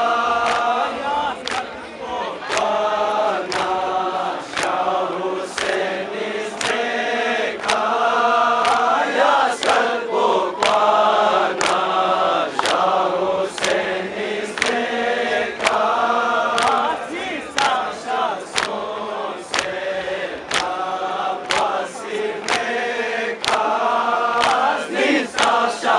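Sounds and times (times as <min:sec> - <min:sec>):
men chanting a lament: 0:00.0 - 0:25.9
hands slapping chests: 0:00.4 - 0:01.8, 0:02.4 - 0:02.8, 0:03.4 - 0:07.0, 0:07.6 - 0:08.0, 0:08.6 - 0:09.9, 0:10.6 - 0:25.9.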